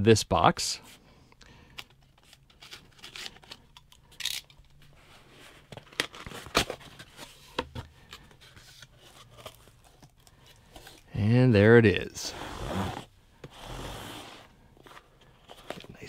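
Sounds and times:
cardboard scrapes and rustles: 12.2 - 15.9.

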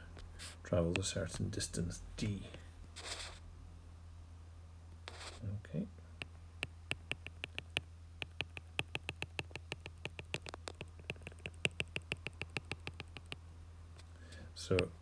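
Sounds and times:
low steady hum: 0.0 - 15.0
stylus tapping on glass screen: 6.2 - 13.4.

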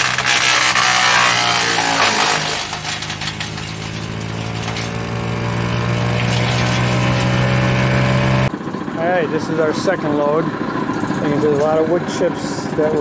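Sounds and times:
wood chips blowing out: 0.0 - 8.5
wood chipper engine running: 0.0 - 13.0.

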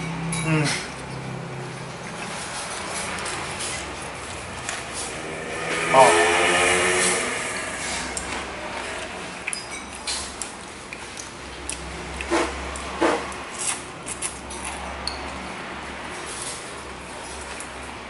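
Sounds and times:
eating noises: 0.5 - 5.3, 7.0 - 15.2.

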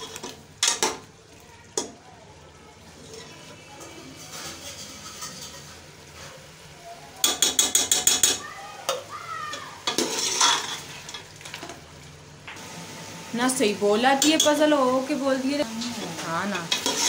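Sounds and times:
ladle scraping pot: 0.0 - 0.9, 3.0 - 6.6, 9.8 - 11.8, 15.9 - 17.0
metal ladle clinking on pot: 7.2 - 8.4
meat sizzling: 9.2 - 17.0.

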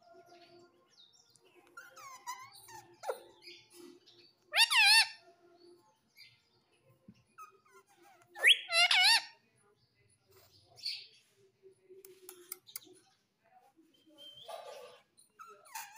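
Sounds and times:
parakeet chattering: 4.5 - 5.2, 8.4 - 9.4
parakeet wavering call: 4.6 - 5.2.

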